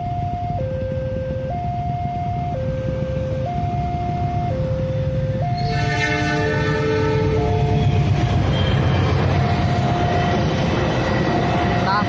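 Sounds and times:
two-tone crossing alarm: 0.0s - 11.8s
low traffic rumble: 0.0s - 12.0s
locomotive horn chord: 5.4s - 8.8s.

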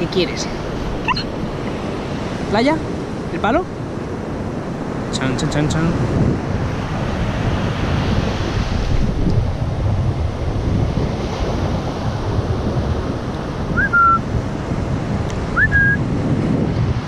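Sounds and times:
surf: 0.0s - 17.0s
wind buffeting microphone: 0.0s - 17.0s
short rising whistle: 13.8s - 14.2s, 15.6s - 16.0s.

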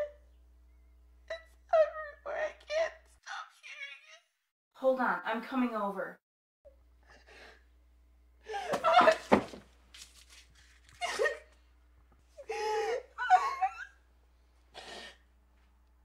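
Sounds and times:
woman moaning and whimpering: 1.3s - 4.1s, 12.4s - 13.8s.

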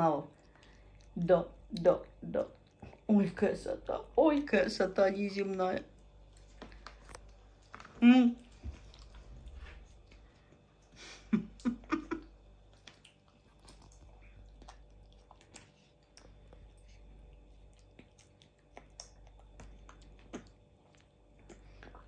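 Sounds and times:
baboon chewing: 6.0s - 11.0s, 11.6s - 22.0s
wet mouth smacks: 18.2s - 22.0s.

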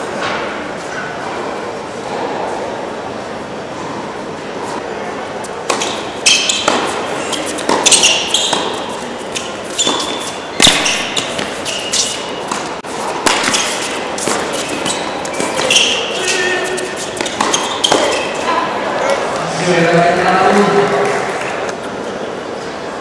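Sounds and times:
shoes squeaking on court: 5.4s - 19.5s
tennis ball bouncing: 5.6s - 18.6s
racket hitting ball: 5.6s - 18.7s.

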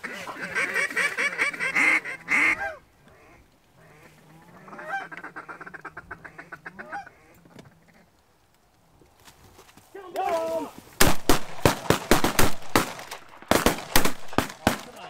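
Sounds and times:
goose honking and clucking: 0.0s - 8.2s.

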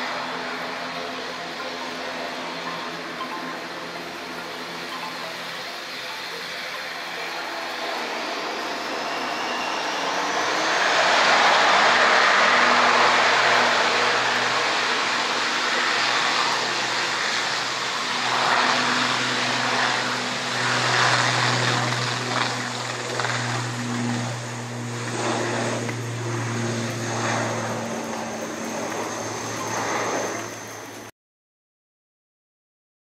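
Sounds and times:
propeller engine drone: 0.0s - 31.1s.

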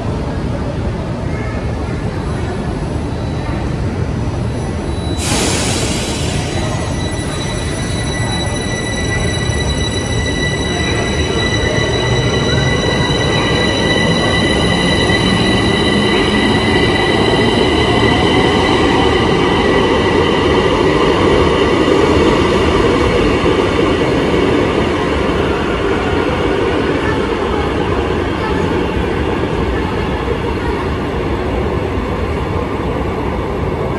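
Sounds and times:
metro train rumble: 0.0s - 33.9s
high wheel squeal: 2.1s - 27.7s.

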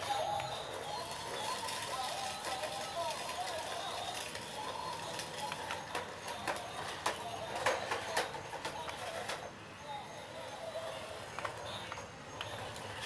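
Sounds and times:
toy car clattering on concrete: 0.0s - 9.6s.

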